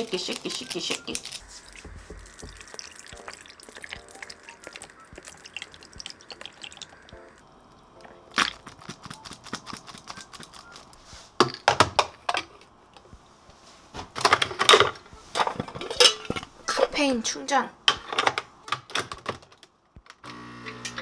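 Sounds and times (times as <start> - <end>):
milk pouring into glass of ice: 1.8 - 7.4.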